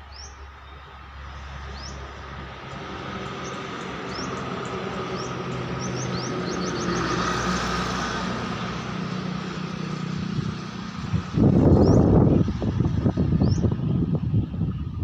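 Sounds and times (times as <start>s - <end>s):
small birds chirping: 0.0s - 7.5s, 11.4s - 14.9s.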